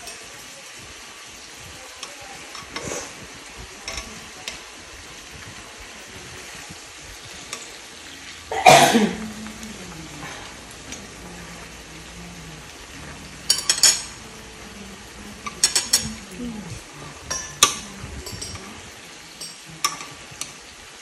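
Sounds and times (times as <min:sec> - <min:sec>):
food sizzling in a frying pan: 0:00.0 - 0:21.0
utensils clicking against pan: 0:02.0 - 0:08.2, 0:13.4 - 0:14.3, 0:15.3 - 0:20.7.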